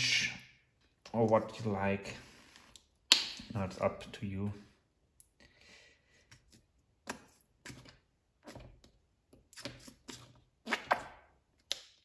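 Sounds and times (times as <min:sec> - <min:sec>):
paint bottle clicks and scrapes: 0:06.3 - 0:11.1.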